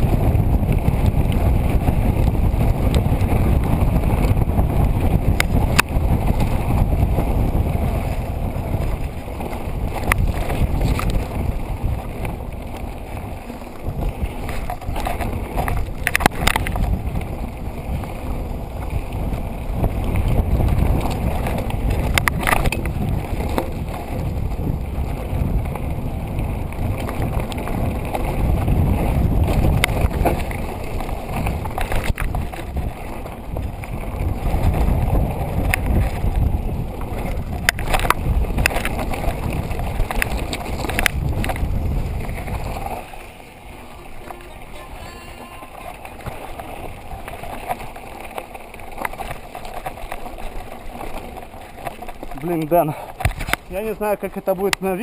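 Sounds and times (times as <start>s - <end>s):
tyres rumbling on gravel: 0.0s - 55.0s
wind buffeting microphone: 0.0s - 55.0s
bike knocking over bumps: 18.8s - 43.1s.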